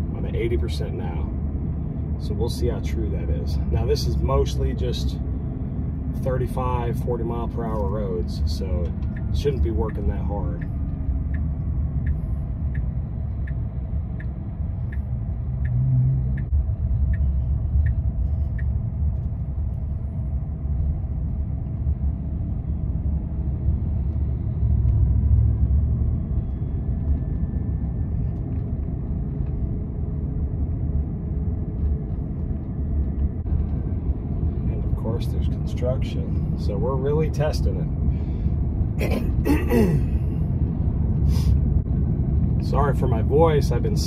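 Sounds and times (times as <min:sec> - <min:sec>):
road and tyre rumble: 0:00.0 - 0:44.0
light regular ticking: 0:07.4 - 0:19.9.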